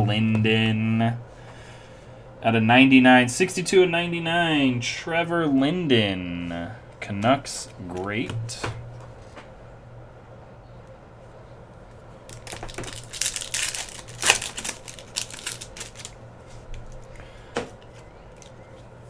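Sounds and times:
steady low hum: 0:00.0 - 0:19.0
foil wrapper tearing and crinkling: 0:12.3 - 0:17.2.

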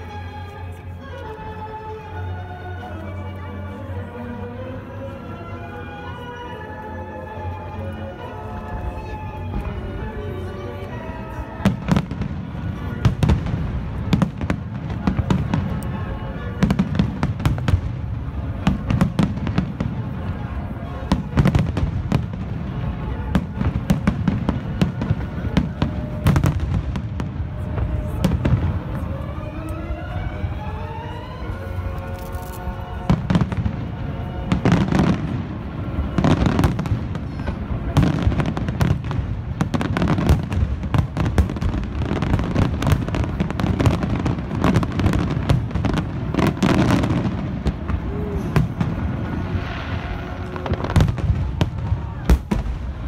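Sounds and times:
fireworks show music: 0:00.0 - 0:53.0
fireworks bursting: 0:11.6 - 0:29.1, 0:33.0 - 0:53.0.

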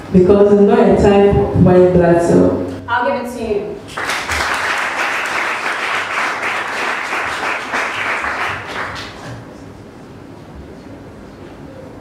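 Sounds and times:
audience applauding: 0:03.9 - 0:09.5.

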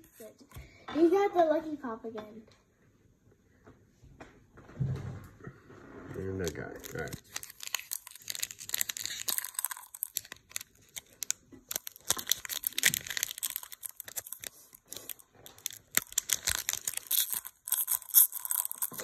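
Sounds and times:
foil wrapper tearing and crinkling: 0:06.4 - 0:19.0.

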